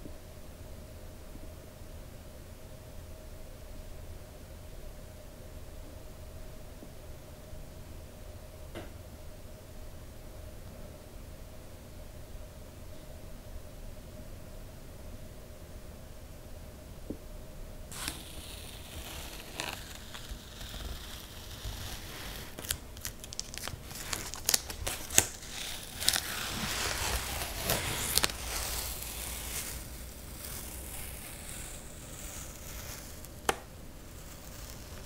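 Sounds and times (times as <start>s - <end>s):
masking tape peeling off paper: 17.9s - 35.0s.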